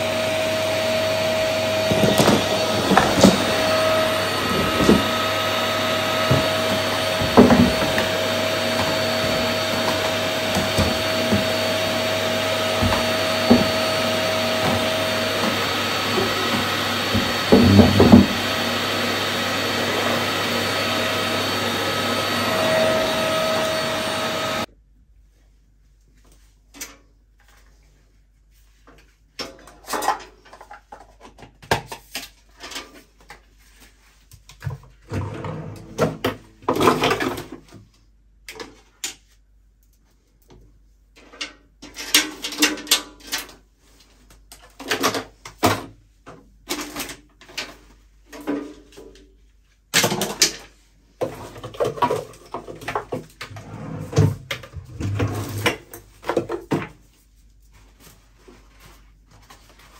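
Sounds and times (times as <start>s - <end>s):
bathroom items knocking and clinking: 1.0s - 24.6s, 49.9s - 57.1s.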